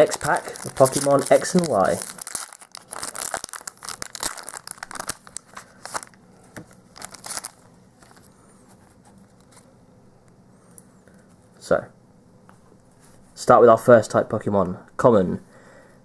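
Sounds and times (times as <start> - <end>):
foil wrapper tearing and crinkling: 0.0 - 6.2, 7.0 - 7.6
cards rustling: 0.0 - 8.3.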